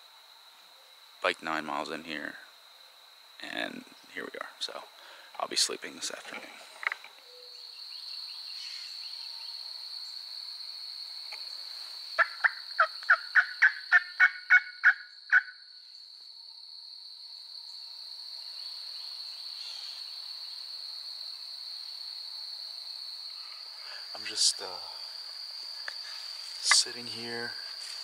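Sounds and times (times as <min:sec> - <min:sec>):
high-pitched insect buzz: 0:06.7 - 0:28.0
turkey yelps: 0:12.2 - 0:15.5.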